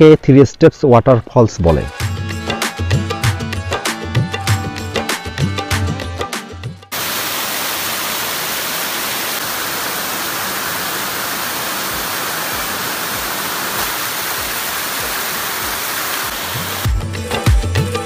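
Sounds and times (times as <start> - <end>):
waterfall rushing: 6.9 - 16.9.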